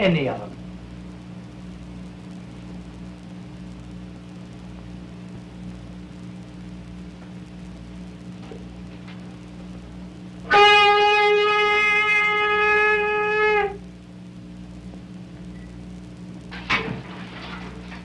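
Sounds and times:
old film soundtrack hum and hiss: 0.0s - 18.0s
saxophone long held note: 10.4s - 13.8s.

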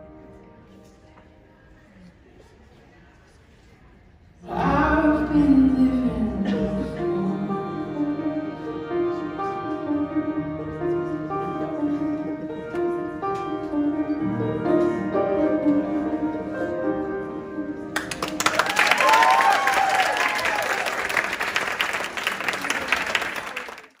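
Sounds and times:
slow instrumental music: 4.5s - 19.2s
audience applause: 18.0s - 24.0s
cheers and whoops: 18.4s - 21.2s.

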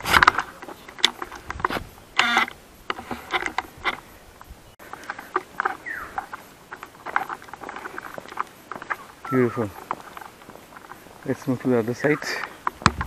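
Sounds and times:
small animals chirping: 4.8s - 12.6s.

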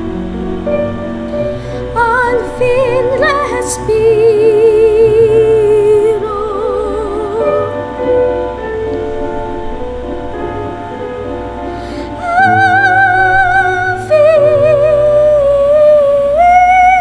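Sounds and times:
digital piano: 0.0s - 17.0s
soprano singing with vibrato: 1.6s - 8.0s, 11.8s - 17.0s.

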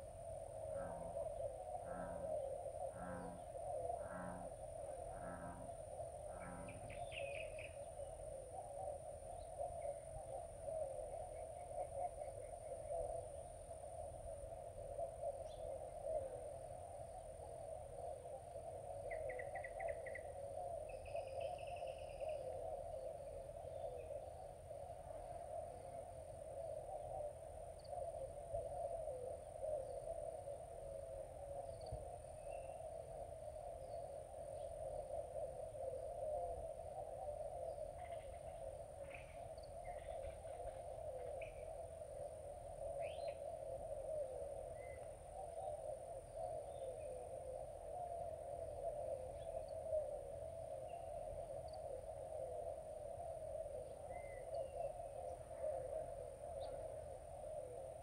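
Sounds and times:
insect drone: 0.0s - 58.0s.

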